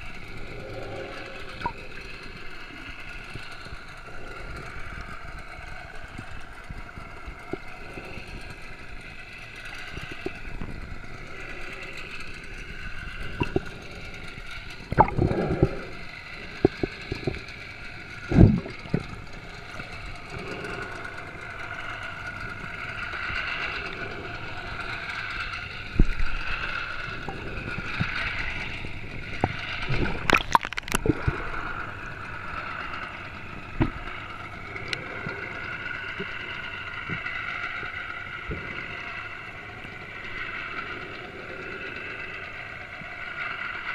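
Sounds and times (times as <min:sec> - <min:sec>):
boat engine whine: 0:00.0 - 0:43.9
underwater knocks: 0:14.9 - 0:15.3
water gurgling underwater: 0:14.9 - 0:15.8, 0:18.3 - 0:19.1, 0:29.3 - 0:31.4.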